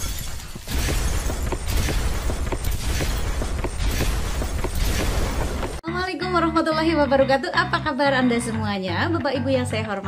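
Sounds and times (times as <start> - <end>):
shattering glass crash: 0.0 - 5.8.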